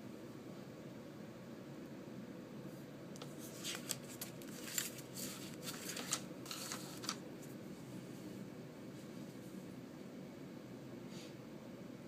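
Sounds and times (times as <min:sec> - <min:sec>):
low background hum: 0:00.0 - 0:12.0
paper cards rustling: 0:03.2 - 0:07.6.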